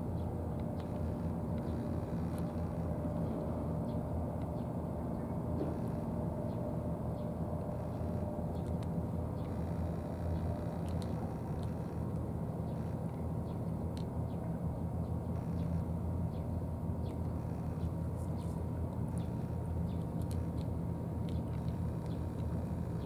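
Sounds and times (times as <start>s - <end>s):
low engine drone: 0.0s - 23.0s
cats chewing dry food: 10.2s - 12.2s, 17.1s - 23.0s.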